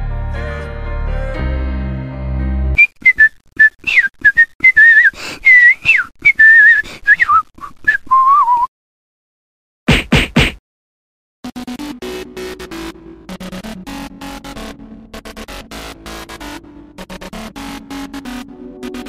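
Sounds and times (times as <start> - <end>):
music: 0.0 - 2.8, 11.4 - 19.0
person whistling: 2.8 - 8.7.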